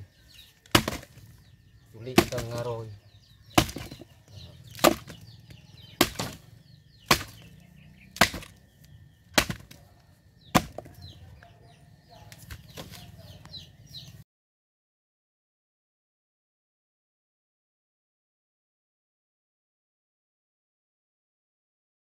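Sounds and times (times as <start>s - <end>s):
fruit head knocking against log: 0.6s - 1.3s, 2.1s - 2.7s, 3.5s - 4.1s, 4.7s - 5.2s, 6.0s - 6.4s, 7.1s - 7.5s, 8.1s - 8.6s, 9.3s - 9.8s, 10.5s - 11.0s.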